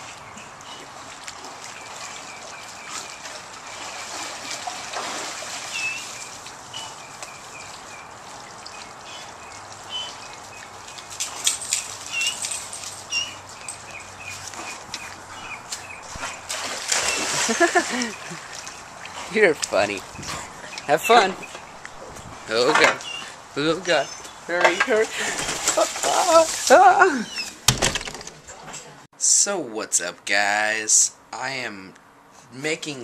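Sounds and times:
water splashing from paddling dogs: 0.0s - 23.4s, 24.2s - 27.0s
small bird chirping: 11.7s - 16.4s.

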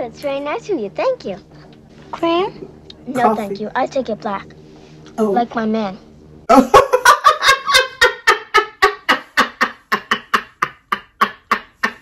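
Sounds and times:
woman laughing hard: 6.5s - 12.0s.

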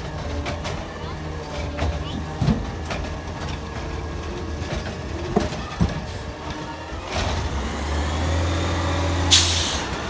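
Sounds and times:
diesel truck engine running: 0.0s - 10.0s
air brake hiss: 9.3s - 9.9s.

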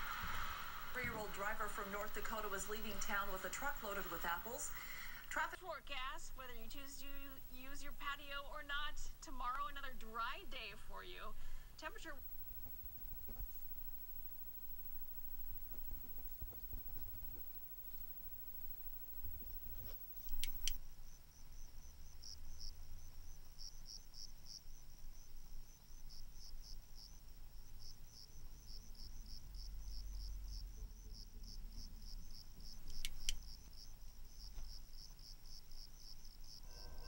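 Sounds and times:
crickets chirping: 0.0s - 5.4s, 6.0s - 37.0s
low hum: 0.0s - 20.8s, 36.6s - 37.0s
sharp clicks: 12.2s - 20.8s, 32.8s - 33.4s.

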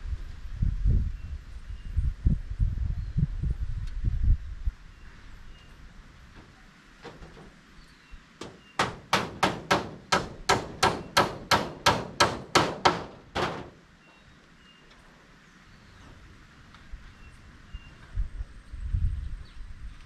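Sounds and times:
hammer striking metal roofing: 6.4s - 7.6s, 8.4s - 13.8s.

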